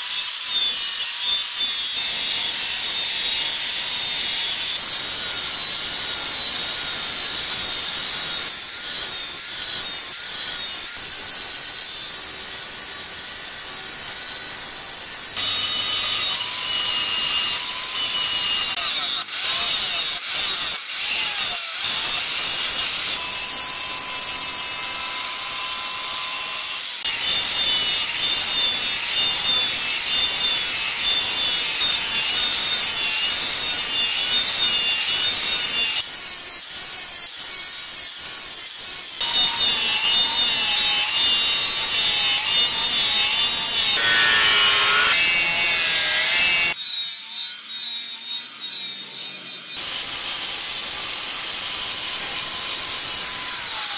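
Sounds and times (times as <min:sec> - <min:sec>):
angle grinder grinding steel: 0:00.0 - 0:53.9.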